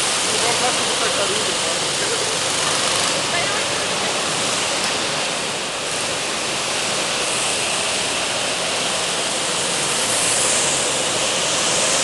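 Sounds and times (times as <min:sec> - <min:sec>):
go-kart engines echoing: 0:00.0 - 0:06.6.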